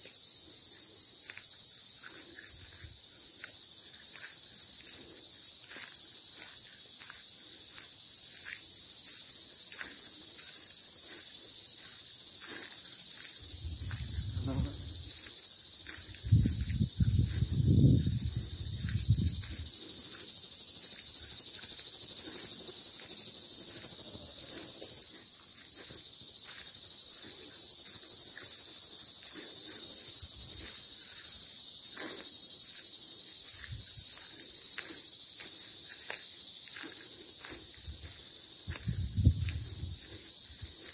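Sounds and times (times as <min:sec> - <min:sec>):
cicadas buzzing: 0:00.0 - 0:40.9.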